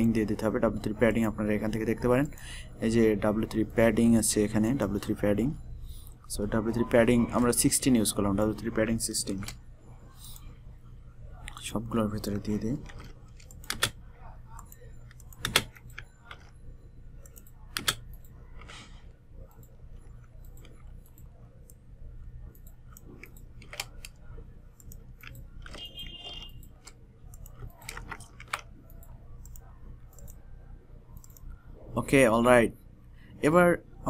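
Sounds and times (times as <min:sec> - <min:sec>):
steady low hum: 0:00.0 - 0:34.0
mouse and keyboard clicks: 0:12.8 - 0:14.0, 0:14.6 - 0:16.6, 0:17.2 - 0:18.9, 0:22.5 - 0:24.2, 0:24.8 - 0:30.4, 0:31.2 - 0:31.5.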